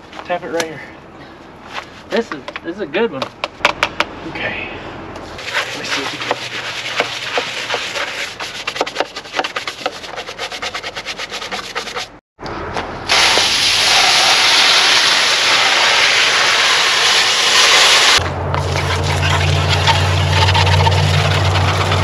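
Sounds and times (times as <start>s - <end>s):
brush scrubbing strokes: 5.3s - 12.2s, 18.6s - 22.0s
water spraying from hose nozzle: 13.1s - 22.0s.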